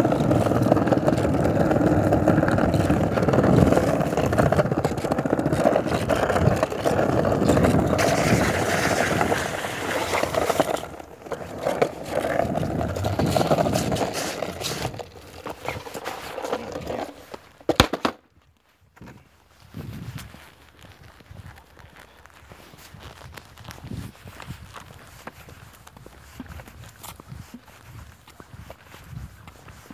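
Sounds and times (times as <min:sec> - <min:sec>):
skateboard clacks: 0:00.0 - 0:18.2
skateboard wheels rolling on pavement: 0:00.0 - 0:29.9.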